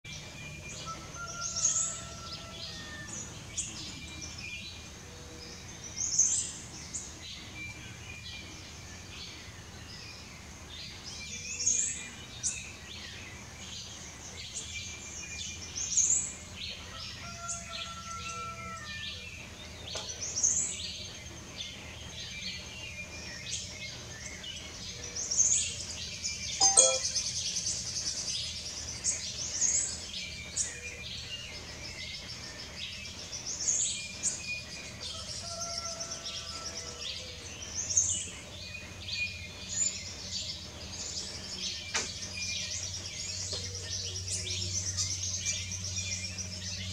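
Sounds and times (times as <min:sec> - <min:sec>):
soft bird chirps: 0:26.6 - 0:27.4.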